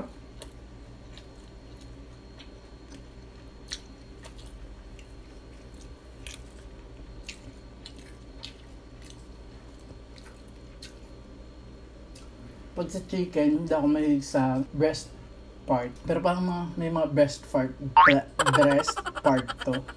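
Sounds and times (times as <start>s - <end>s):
chewing crispy food: 0.1s - 11.4s.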